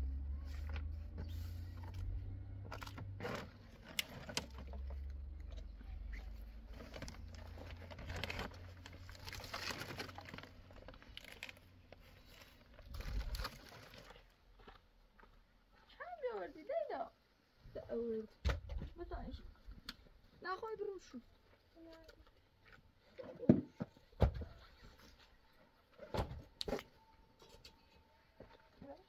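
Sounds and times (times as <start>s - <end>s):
twigs rustling and scraping: 2.6s - 14.3s.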